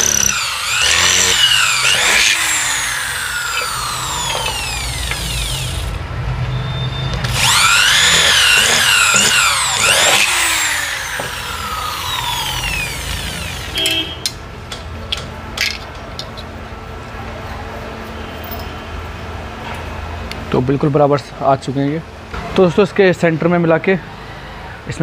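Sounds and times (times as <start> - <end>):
electric drill boring: 0.0 - 6.0, 7.2 - 13.9.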